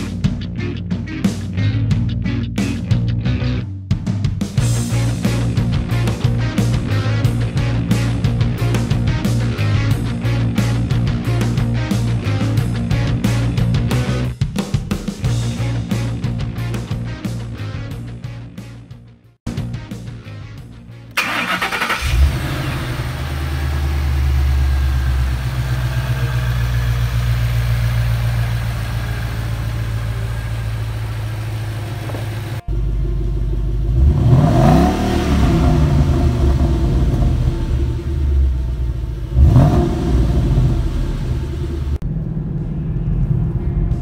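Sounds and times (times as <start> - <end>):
car engine starting and idling: 21.0 - 44.0
car engine revving: 21.2 - 44.0.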